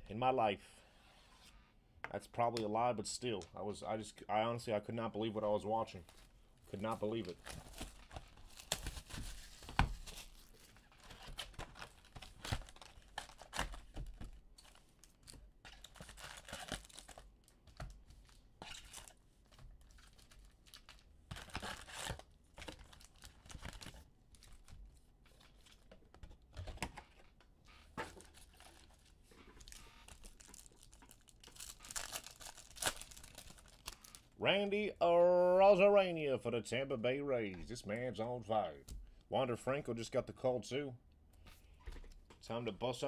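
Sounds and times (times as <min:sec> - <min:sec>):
cardboard box and cards rustling: 0:06.1 - 0:27.4, 0:28.0 - 0:34.2
foil wrappers tearing and crinkling: 0:07.1 - 0:13.8, 0:15.7 - 0:17.2, 0:19.9 - 0:24.6, 0:28.2 - 0:34.2.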